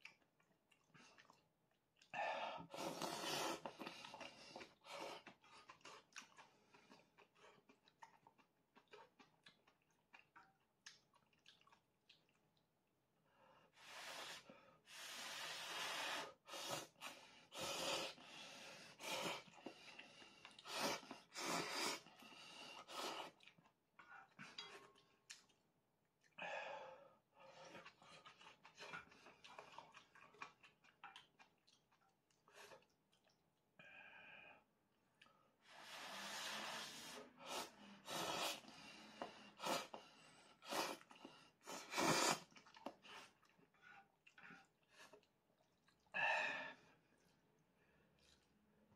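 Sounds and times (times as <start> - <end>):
soft chewing: 0.0 - 13.0, 19.3 - 26.4, 27.2 - 33.8, 35.0 - 35.6, 37.2 - 46.2, 46.8 - 48.9
person slurping noodles: 2.6 - 6.6, 20.6 - 22.2, 35.6 - 40.0, 40.6 - 43.5.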